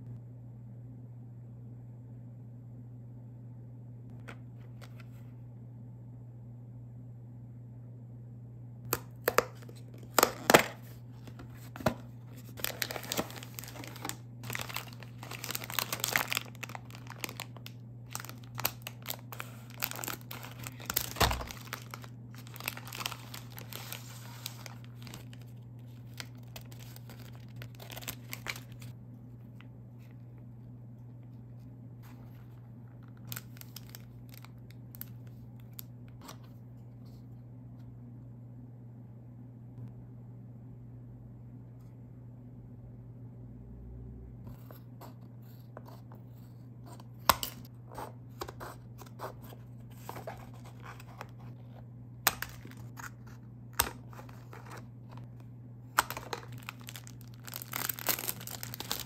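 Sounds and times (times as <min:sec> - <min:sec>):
packaging tearing and crinkling: 0:08.9 - 0:28.9, 0:33.1 - 0:35.8, 0:48.5 - 0:59.0.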